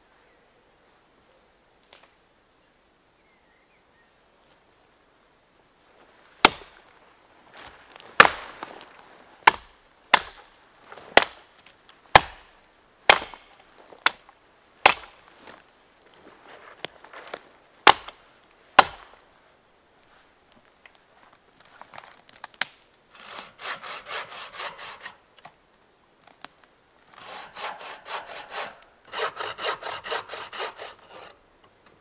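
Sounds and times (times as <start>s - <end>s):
billhook chopping branches: 6.4s - 6.8s, 8.2s - 8.7s, 9.4s - 10.5s, 11.1s - 11.4s, 12.1s - 12.5s, 13.1s - 15.2s, 17.3s - 18.2s, 18.8s - 19.2s.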